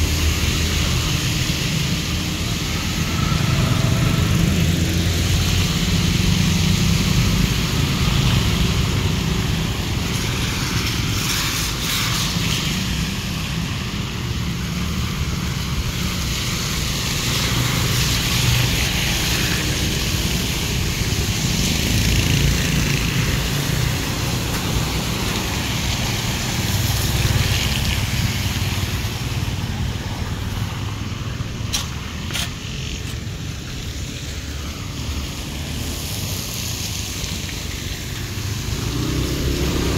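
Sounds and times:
tyres swishing through water: 0.0 - 39.9
vehicles passing on wet street: 0.0 - 39.9.

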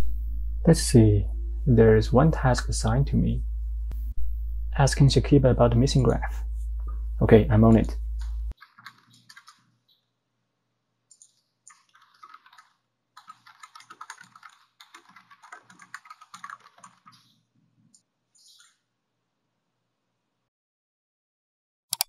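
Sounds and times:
steady background sound: 0.0 - 13.6
keyboard typing: 7.8 - 9.7, 11.1 - 17.3.

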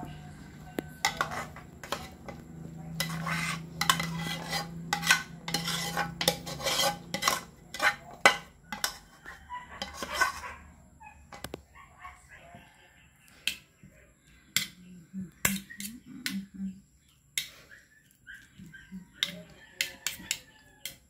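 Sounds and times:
metal spoon scraping a pan: 0.8 - 10.6, 14.5 - 14.8, 15.4 - 16.5, 19.1 - 21.0
spoon clinking against pan: 3.0 - 9.1.

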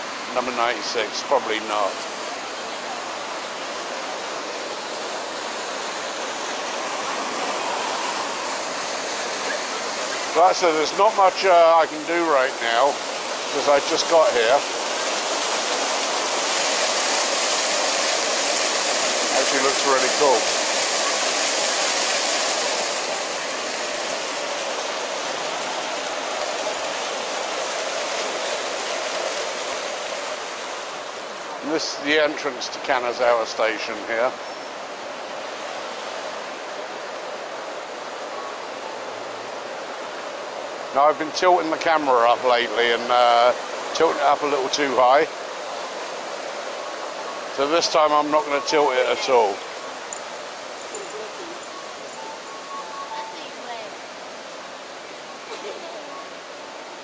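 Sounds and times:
street fountain splashing: 0.0 - 57.0
fountain water splashing into pool: 5.6 - 30.0.

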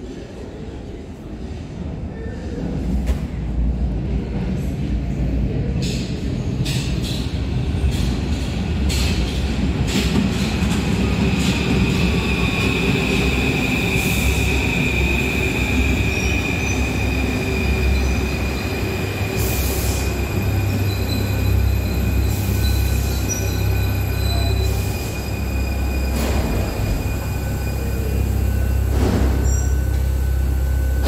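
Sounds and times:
train rumbling: 0.0 - 31.0
high wheel squeal: 12.1 - 28.3.

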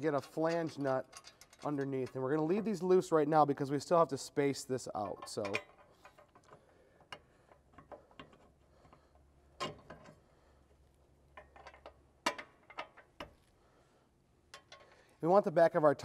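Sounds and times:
metal bracket clicking and knocking: 0.0 - 2.4, 4.9 - 10.2, 11.3 - 13.4, 14.5 - 15.0.

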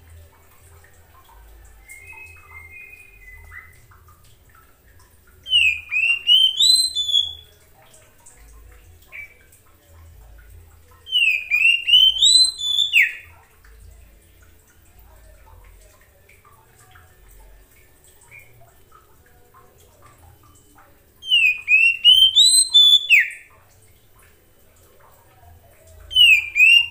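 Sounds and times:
bird singing whistled phrases: 1.8 - 3.9, 5.4 - 7.5, 11.1 - 13.3, 21.2 - 23.5, 26.1 - 26.9.

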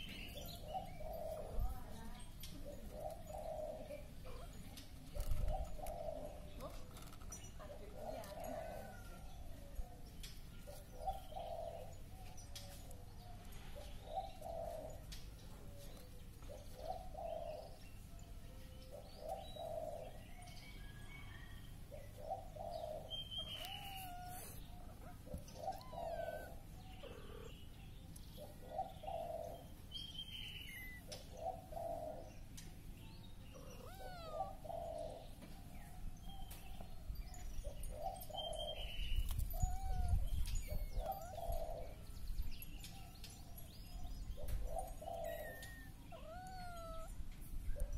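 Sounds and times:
soft low bird call: 23.0 - 27.7, 44.8 - 47.2.

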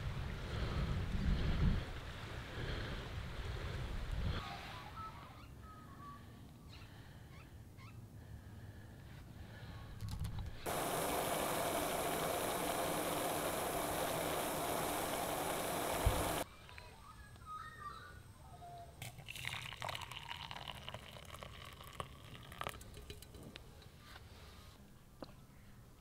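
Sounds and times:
camp stove burner hissing: 10.6 - 16.4.

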